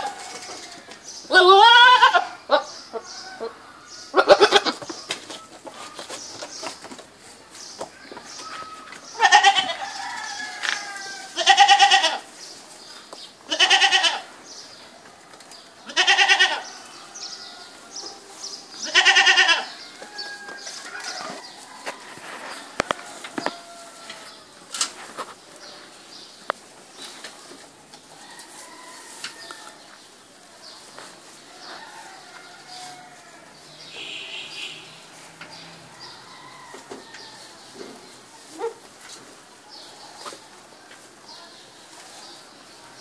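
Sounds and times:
young goat bleating: 1.3 - 2.7, 4.1 - 4.8, 9.1 - 9.8, 10.8 - 12.3, 13.5 - 14.3, 15.8 - 16.8, 18.8 - 19.8
small birds chirping: 2.5 - 22.0, 33.6 - 38.7
goats pulling hay rustling: 4.3 - 43.0.

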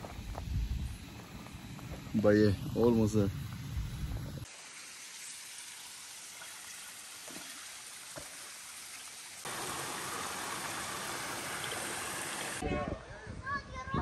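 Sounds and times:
water running over rocks: 4.4 - 12.6.

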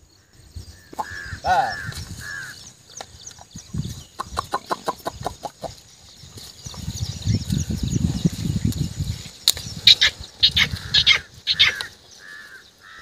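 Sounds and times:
chicken clucking: 4.1 - 5.8.

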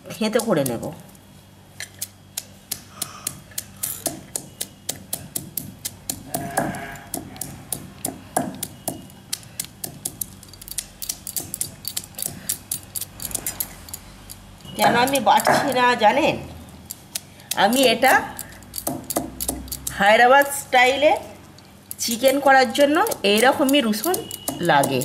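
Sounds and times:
stone pounding garlic on stone: 2.4 - 13.6, 17.7 - 20.0, 22.1 - 25.0.

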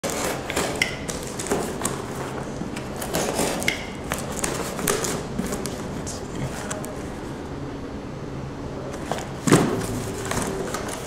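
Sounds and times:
box cutter slicing tape: 0.0 - 2.1, 2.8 - 5.7
cardboard scrapes and knocks: 3.0 - 5.8.

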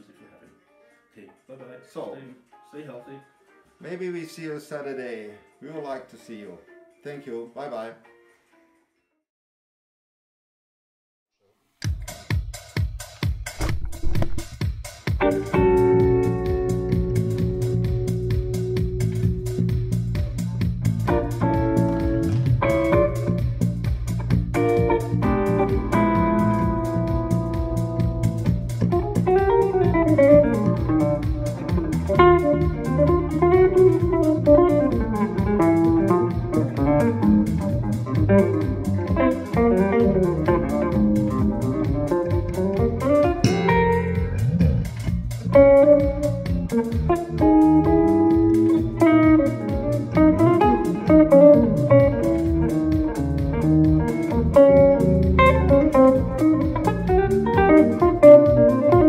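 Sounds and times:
electric guitar melody: 15.1 - 59.0
electric bass low notes: 15.2 - 59.0.

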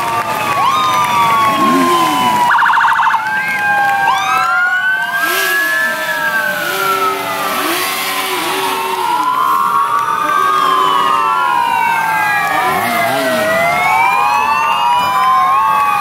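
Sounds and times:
police sirens wailing: 0.0 - 16.0.

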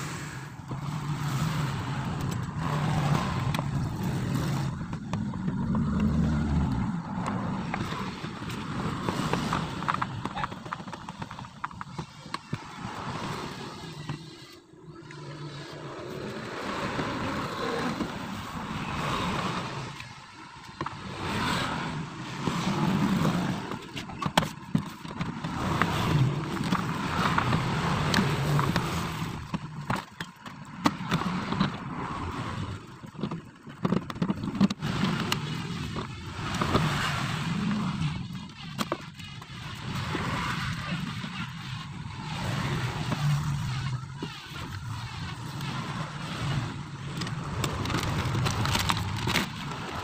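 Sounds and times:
vehicle hum: 0.0 - 50.0
plastic scraping on door: 20.8 - 50.0.

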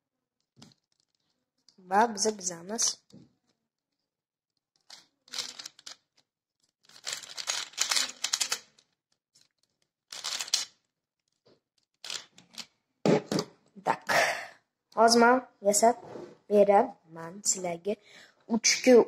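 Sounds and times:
puzzle pieces clicking and rattling: 4.7 - 12.7.

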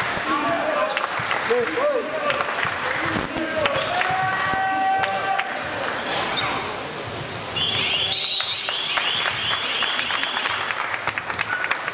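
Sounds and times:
echoing sports hall noise: 0.0 - 11.9
basketball bouncing: 2.3 - 4.7
referee's whistle warbling blast: 7.6 - 10.5.

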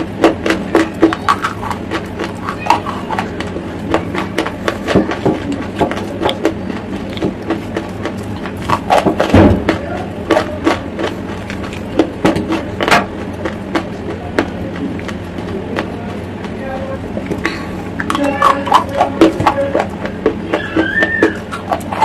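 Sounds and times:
faint steady hum: 0.0 - 22.0
thump: 9.3 - 9.7.

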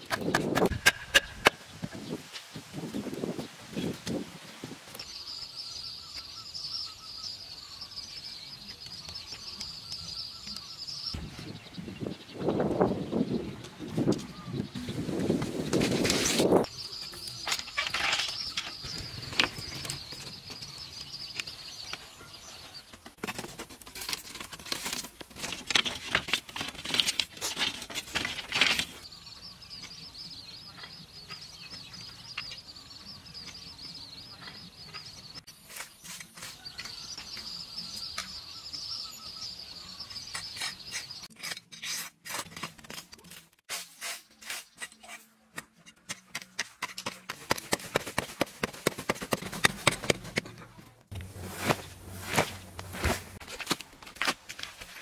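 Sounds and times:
hoe striking dry soil: 0.0 - 1.6, 43.7 - 50.5, 51.1 - 54.7
bamboo poles knocking and clattering: 0.0 - 2.4, 17.3 - 22.1, 22.9 - 29.0, 44.8 - 55.0.

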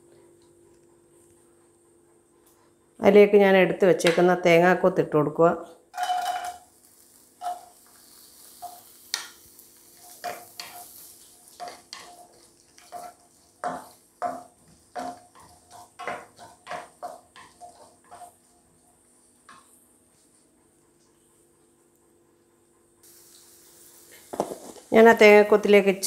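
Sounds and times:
light frying sizzle: 6.0 - 21.7, 23.0 - 26.0
spatula scraping a pan: 7.4 - 20.3.

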